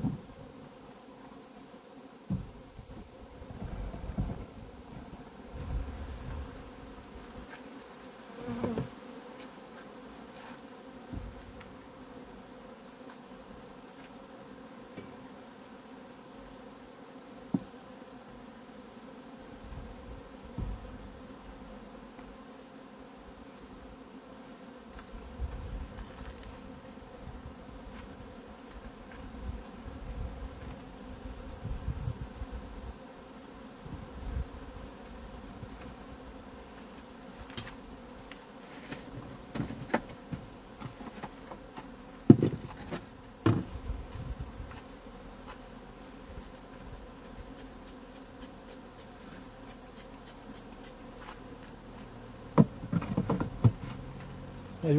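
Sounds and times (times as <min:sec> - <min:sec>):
bees buzzing: 0:00.0 - 0:54.9
wooden hive frames knocking: 0:02.3 - 0:02.6, 0:17.5 - 0:17.8, 0:20.5 - 0:21.0, 0:39.0 - 0:43.8, 0:52.5 - 0:54.0.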